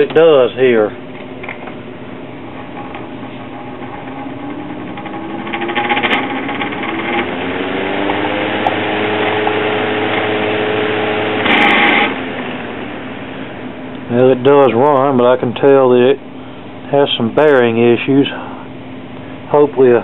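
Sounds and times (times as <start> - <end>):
electric fan motor humming: 0.0 - 20.0
rattling clatter: 2.5 - 7.4.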